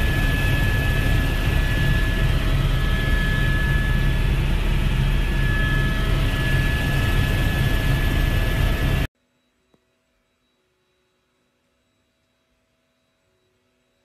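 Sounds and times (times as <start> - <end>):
aircraft cabin engine rumble: 0.0 - 9.1.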